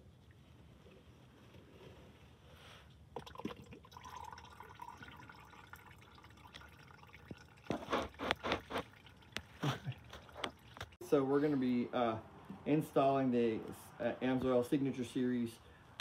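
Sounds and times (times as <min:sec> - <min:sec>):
oil dripping into pan: 0:03.2 - 0:07.7.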